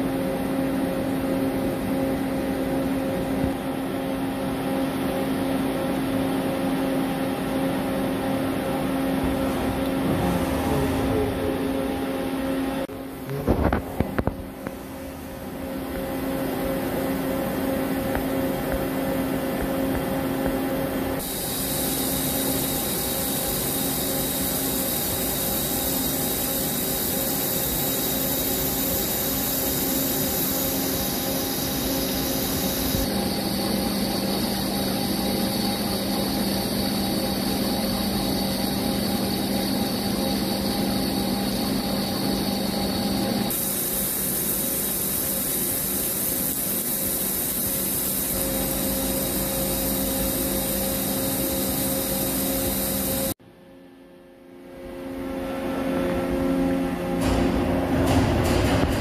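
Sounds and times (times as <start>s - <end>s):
machine hum: 0.0s - 59.0s
coolant jet hissing: 21.2s - 53.4s
lathe cutting metal: 21.2s - 53.4s.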